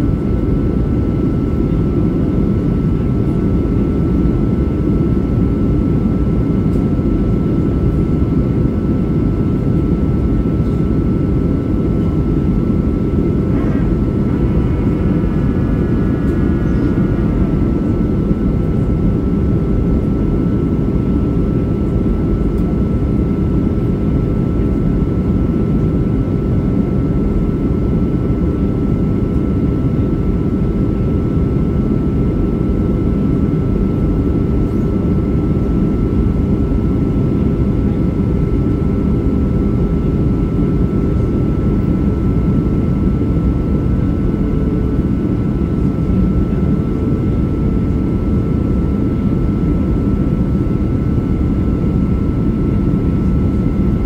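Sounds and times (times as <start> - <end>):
airplane cabin rumble: 0.0 - 54.0
faint steady hum: 0.0 - 54.0.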